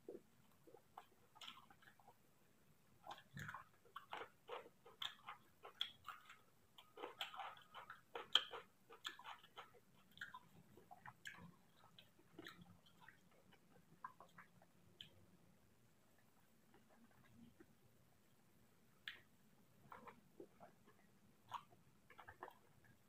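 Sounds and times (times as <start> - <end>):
wet chewing mouth clicks: 3.0 - 15.2, 19.0 - 23.0.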